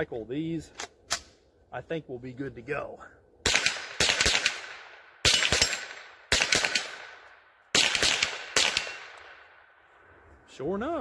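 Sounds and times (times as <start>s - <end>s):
rifle shots echoing: 3.4s - 9.8s.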